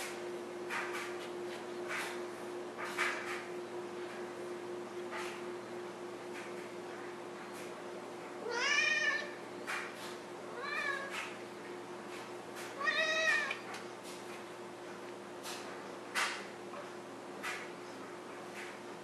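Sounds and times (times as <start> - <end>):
cat meowing: 8.4 - 9.4, 10.6 - 11.1, 12.8 - 13.6.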